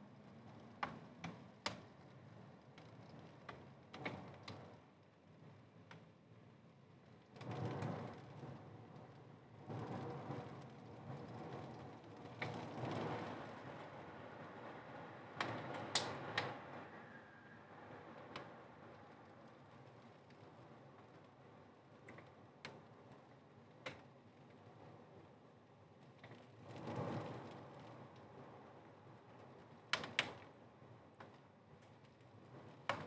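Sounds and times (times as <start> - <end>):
faint city noise: 0.0 - 33.0
raindrops ticking on glass: 7.0 - 14.5, 15.3 - 16.5.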